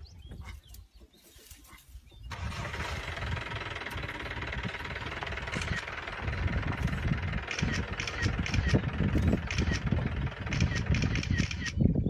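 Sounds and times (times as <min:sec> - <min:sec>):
vehicle engine starting and running: 0:02.3 - 0:11.8.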